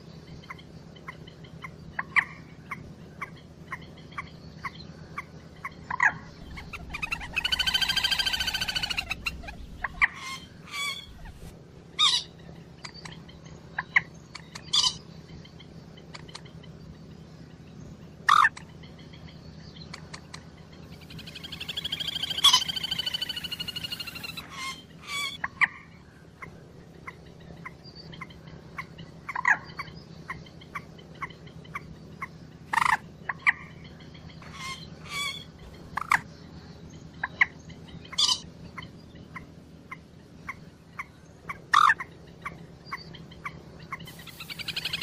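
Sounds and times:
moorhen chattering call: 0:05.6 - 0:11.5, 0:21.0 - 0:25.4, 0:40.4 - 0:45.0.

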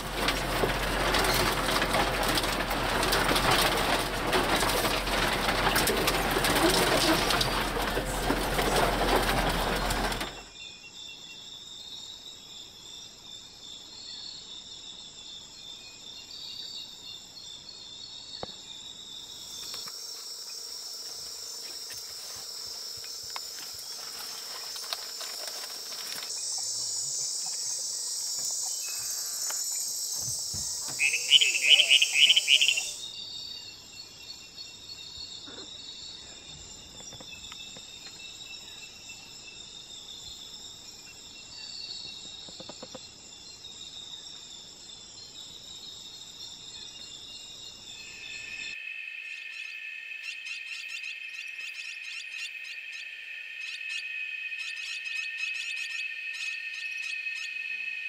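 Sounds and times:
insect chorus trills: 0:00.0 - 0:58.0
loud pulsed animal call: 0:30.8 - 0:33.0.

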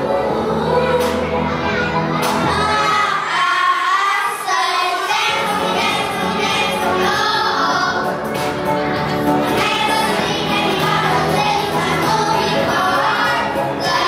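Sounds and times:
children singing into microphones: 0:00.0 - 0:14.0
dance-pop music: 0:05.3 - 0:14.0.

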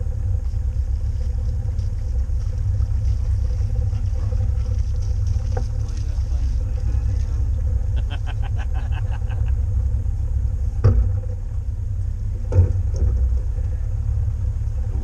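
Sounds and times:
boat motor running: 0:00.0 - 0:15.0
knocks: 0:10.8 - 0:11.4, 0:12.4 - 0:13.4.

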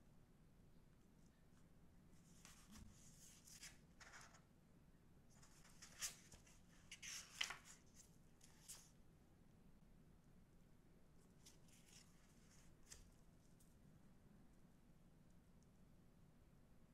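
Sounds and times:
paper pages rustling: 0:02.2 - 0:04.5, 0:05.3 - 0:08.9, 0:11.4 - 0:13.7.

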